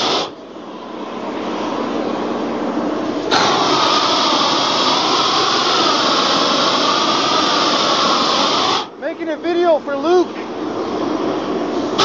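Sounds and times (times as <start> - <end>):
roofing torch hissing: 0.0 - 12.0.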